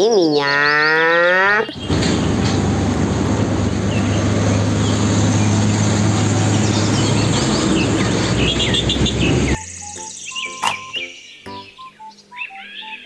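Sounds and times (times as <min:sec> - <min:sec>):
birds chirping: 0:00.0 - 0:13.0
road noise: 0:01.6 - 0:10.9
truck engine drone: 0:01.7 - 0:10.9.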